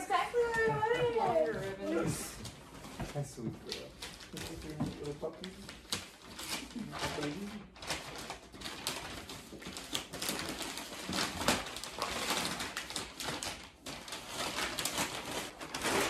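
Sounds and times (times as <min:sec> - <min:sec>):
paper tearing and crumpling: 0:03.7 - 0:16.0.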